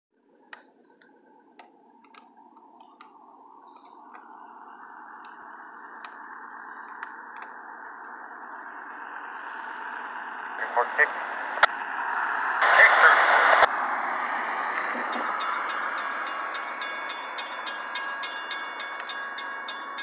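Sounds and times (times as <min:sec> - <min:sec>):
diesel locomotive engine: 0:00.2 - 0:20.0
faint clicks: 0:00.3 - 0:09.3
train rail noise: 0:14.7 - 0:20.0.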